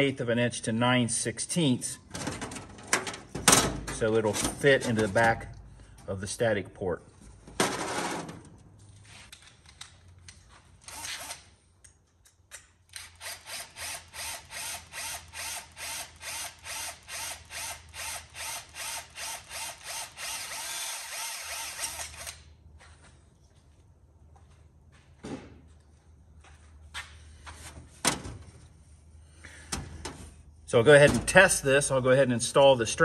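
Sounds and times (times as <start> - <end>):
power drill drilling metal: 13.0 - 22.4.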